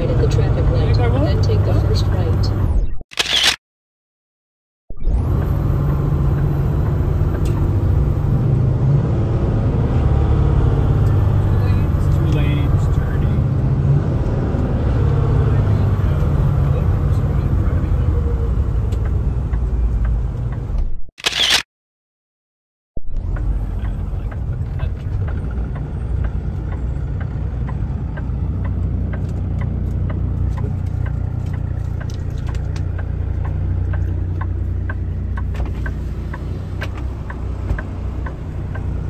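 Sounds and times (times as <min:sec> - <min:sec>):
truck engine and road rumble: 0:00.0 - 0:03.6, 0:04.9 - 0:21.7, 0:23.0 - 0:39.0
faint regular ticking: 0:25.2 - 0:36.5.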